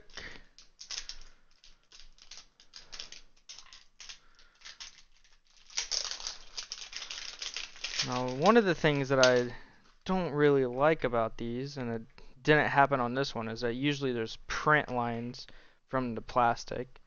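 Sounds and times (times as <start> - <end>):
plastic shrink-wrap crinkling: 0.0 - 9.6.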